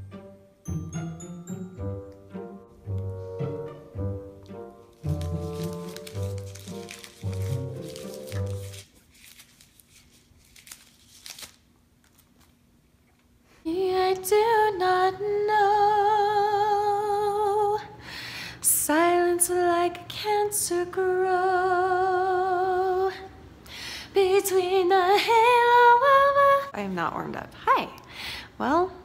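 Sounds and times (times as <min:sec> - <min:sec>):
woman singing with vibrato: 0:13.7 - 0:18.0, 0:18.6 - 0:23.4, 0:24.2 - 0:26.8.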